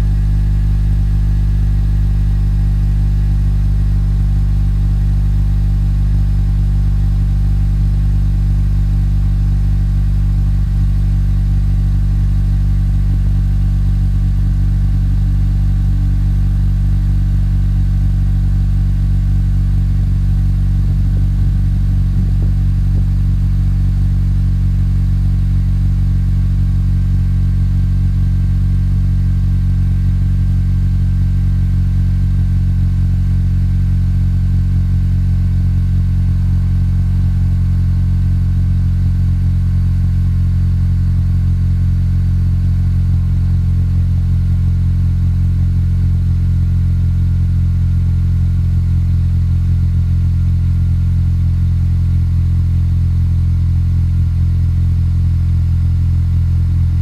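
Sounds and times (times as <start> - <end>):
car engine idling: 2.6 - 26.7.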